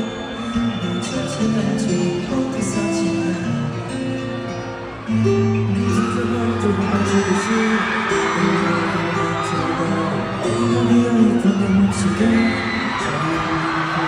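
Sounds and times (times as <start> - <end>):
guitar backing: 0.0 - 14.0
pop concert music over speakers: 0.0 - 14.0
person singing: 0.7 - 4.0, 5.1 - 14.0.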